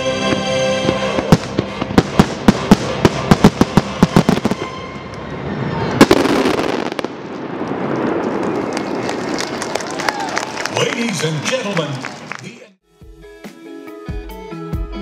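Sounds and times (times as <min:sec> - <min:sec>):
soundtrack music: 0:00.0 - 0:05.9
firework bangs: 0:01.1 - 0:04.8, 0:05.9 - 0:10.7
crowd noise: 0:07.1 - 0:12.8.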